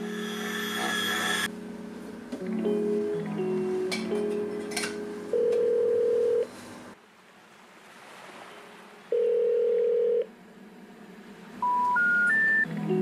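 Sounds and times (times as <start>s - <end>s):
telephone ringing tone: 0.0s - 1.5s, 5.3s - 6.5s, 9.1s - 10.3s.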